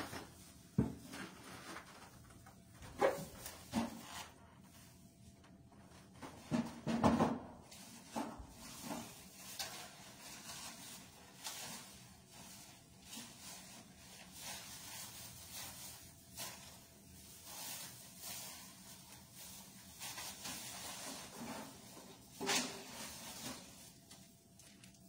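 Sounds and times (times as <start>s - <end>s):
plastic bag rustling: 0.0s - 5.4s, 7.7s - 25.0s.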